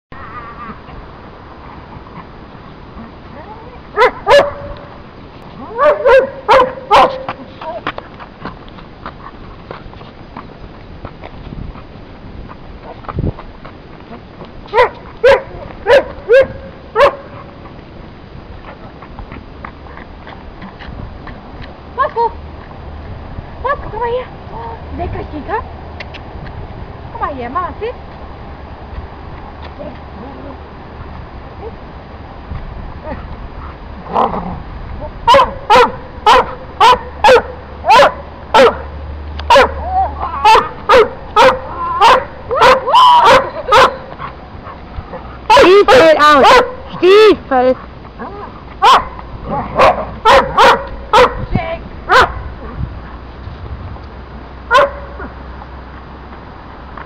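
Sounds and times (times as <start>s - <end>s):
dog barking: 4.0s - 4.9s, 5.7s - 7.4s, 14.7s - 17.4s, 35.3s - 38.9s, 39.5s - 39.8s, 40.4s - 44.1s, 45.5s - 46.8s, 48.8s - 51.4s, 52.1s - 52.5s, 54.7s - 55.3s.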